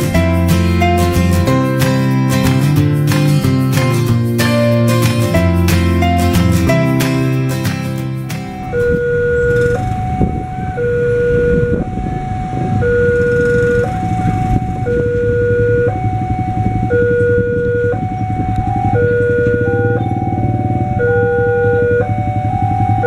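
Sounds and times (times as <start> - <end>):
motorbike engines: 0.0 - 23.0
road traffic: 0.0 - 23.0
two-tone level crossing alarm: 0.0 - 23.0
second crossing alarm: 8.3 - 23.0.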